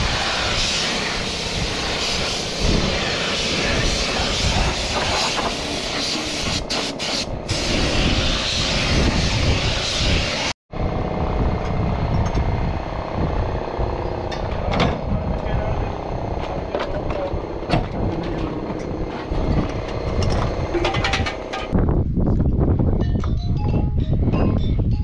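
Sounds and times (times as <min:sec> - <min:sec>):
spray gun hissing: 0:00.0 - 0:10.5
low machine rumble: 0:10.7 - 0:23.0.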